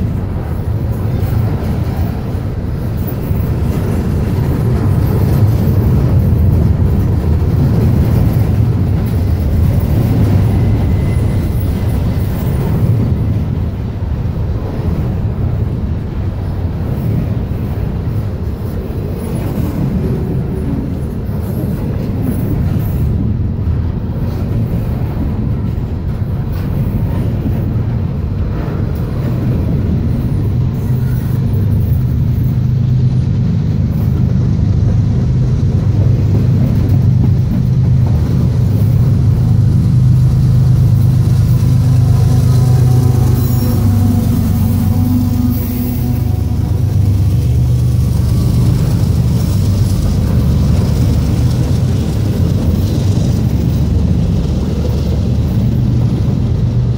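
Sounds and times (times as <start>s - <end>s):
diesel locomotive hum: 0.0s - 56.9s
train wheels rumbling on rail: 0.0s - 56.9s.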